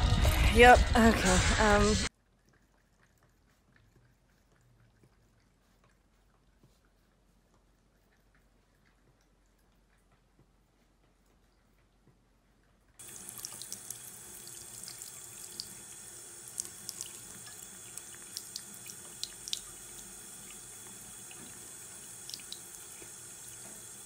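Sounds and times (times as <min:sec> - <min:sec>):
cat lapping water: 0:02.1 - 0:24.0
faucet running into sink: 0:13.0 - 0:24.0.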